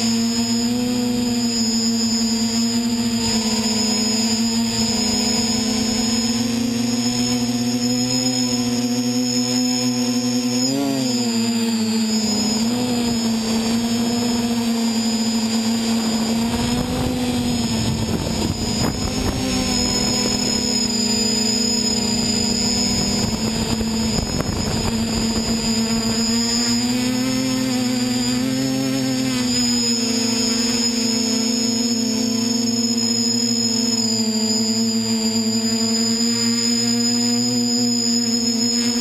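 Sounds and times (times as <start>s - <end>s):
drone propellers whining: 0.0s - 39.0s.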